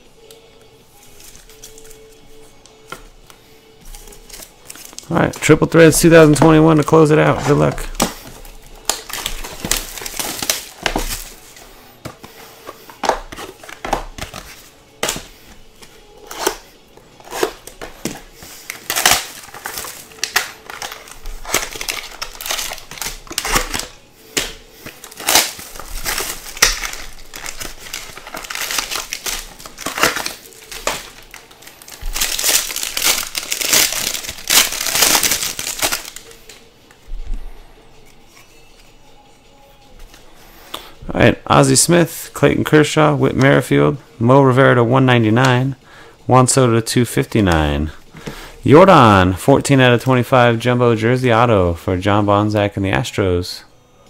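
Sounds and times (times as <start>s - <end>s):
foil wrappers crinkling and tearing: 1.0s - 36.7s.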